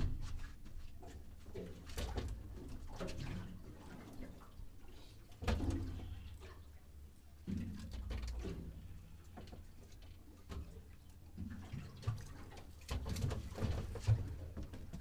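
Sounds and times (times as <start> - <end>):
waves lapping against boat hull: 0.0 - 15.0
low steady rumble: 2.3 - 12.8.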